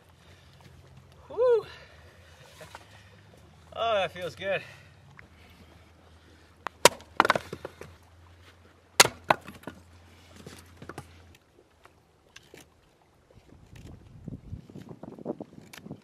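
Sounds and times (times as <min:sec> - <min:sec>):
hatchet splitting wood: 0:06.8 - 0:07.9, 0:09.0 - 0:09.8.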